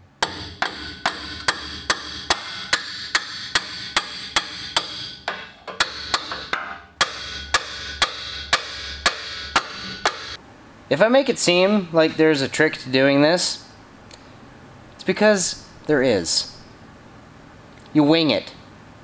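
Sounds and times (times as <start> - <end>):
sharp knocking beat: 0.2 - 10.4.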